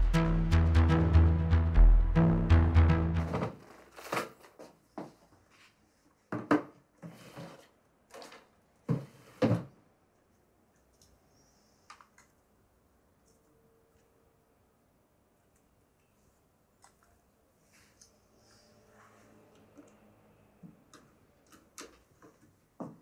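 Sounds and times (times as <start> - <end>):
film score music: 0.0 - 3.5.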